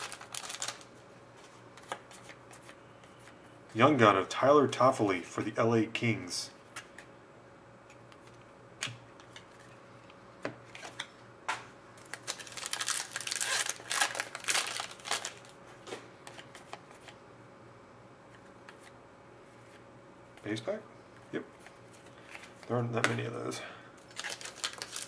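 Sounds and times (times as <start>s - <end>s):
foil wrapper tearing and crinkling: 0.0s - 0.9s, 12.0s - 15.5s, 24.1s - 25.0s
cards rustling: 0.0s - 3.4s, 12.0s - 15.6s, 24.0s - 25.0s.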